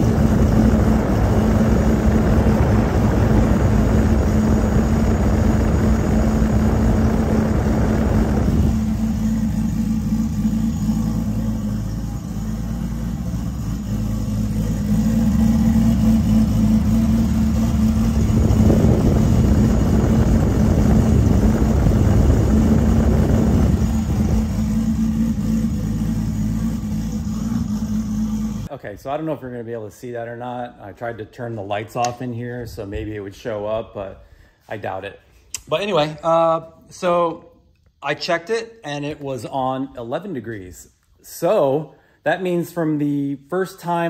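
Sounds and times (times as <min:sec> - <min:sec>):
car engine idling: 0:00.0 - 0:28.7.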